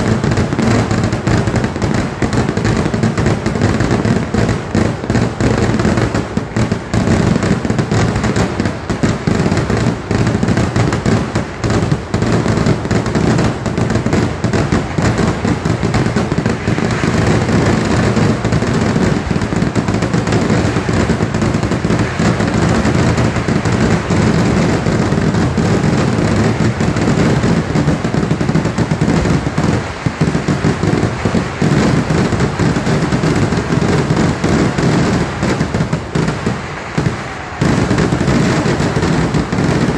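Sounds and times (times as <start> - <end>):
firecrackers exploding: 0.0 - 39.9.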